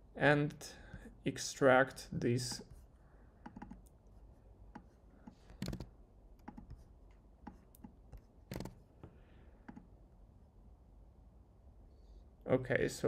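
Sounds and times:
computer keyboard typing: 0:03.4 - 0:03.9, 0:05.6 - 0:06.8, 0:07.4 - 0:08.8.

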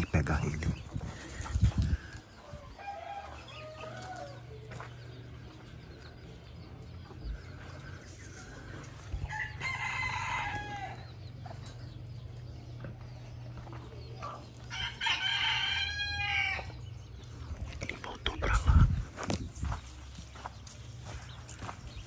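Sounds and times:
rooster crowing: 0:02.4 - 0:04.6, 0:09.2 - 0:11.2, 0:14.7 - 0:16.8
steady low hum: 0:04.2 - 0:22.0.

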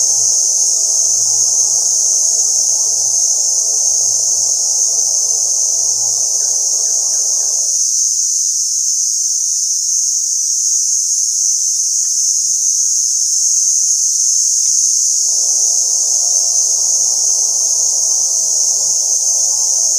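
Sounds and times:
low pulsing sound: 0:00.0 - 0:07.8, 0:15.1 - 0:19.9
insect chorus drone: 0:00.0 - 0:19.9.

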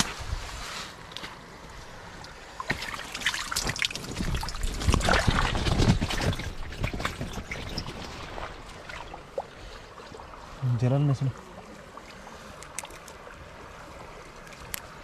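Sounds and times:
water trickling and splashing: 0:00.0 - 0:15.0
wet fish slapping: 0:02.6 - 0:09.4.

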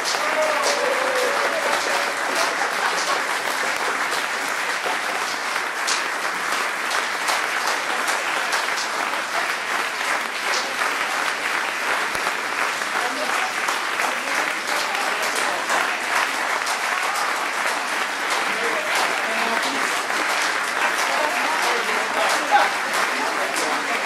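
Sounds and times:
audience applauding: 0:00.0 - 0:24.0.

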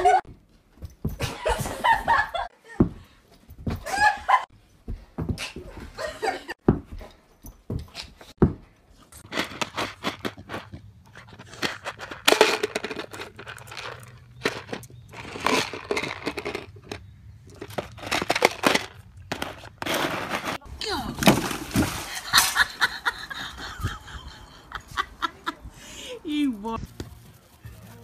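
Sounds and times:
plastic tub scraping on asphalt: 0:09.2 - 0:22.6.

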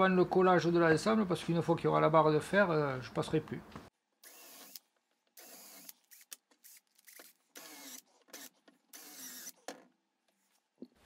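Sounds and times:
cordless drill boring into wood: 0:04.2 - 0:04.8, 0:05.4 - 0:09.7.

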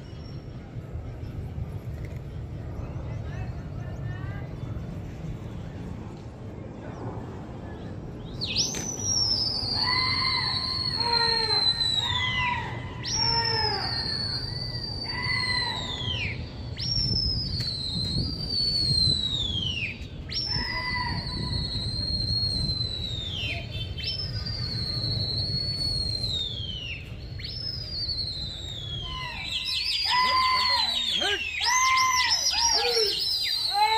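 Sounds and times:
loud signal whistles: 0:08.4 - 0:33.9.

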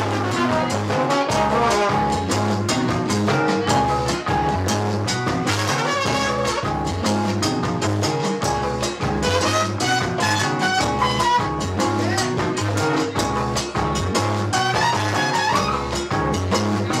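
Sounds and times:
trumpet lead: 0:00.0 - 0:02.4, 0:05.5 - 0:07.1, 0:09.2 - 0:11.9, 0:14.5 - 0:16.1
funk band playing: 0:00.0 - 0:17.0.

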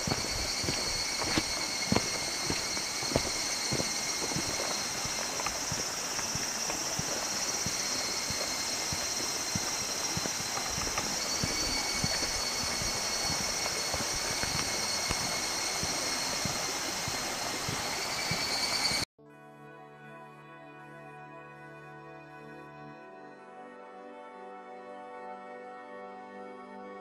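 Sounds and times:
fast-flowing river rushing: 0:00.0 - 0:19.0
footsteps on dirt and stone: 0:00.0 - 0:19.0
soft music: 0:19.2 - 0:27.0.

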